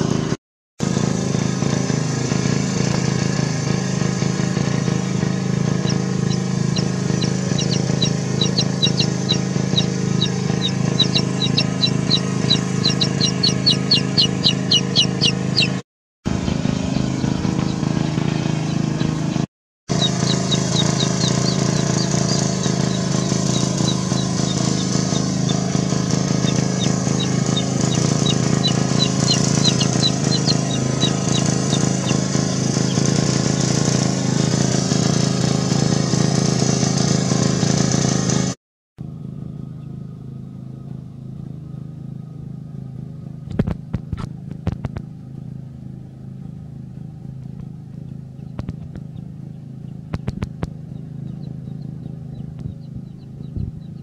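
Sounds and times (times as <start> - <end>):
steady motor drone: 0.0 - 54.0
chick peeping: 5.2 - 15.8, 16.7 - 19.2, 19.9 - 33.7, 48.0 - 54.0.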